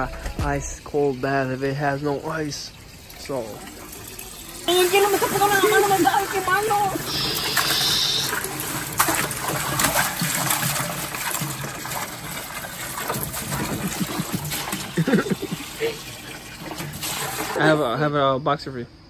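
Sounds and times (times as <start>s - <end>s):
running water: 0.0s - 18.1s
ice cubes splashing into water: 4.6s - 15.8s.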